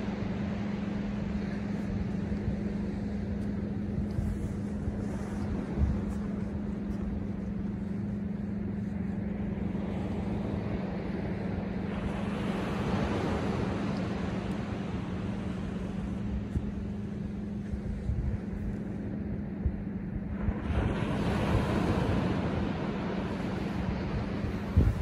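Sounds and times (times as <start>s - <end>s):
constant low hum: 0.0s - 25.0s
surf washing onto beach: 20.4s - 25.0s.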